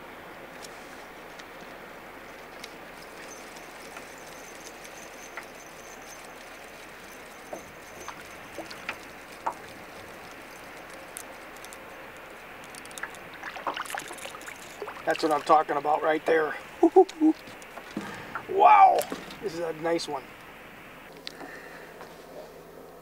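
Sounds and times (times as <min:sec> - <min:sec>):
wind: 0:00.0 - 0:23.0
lake water washing around boat: 0:00.6 - 0:16.8
fishing rod and reel clicks: 0:02.6 - 0:15.5.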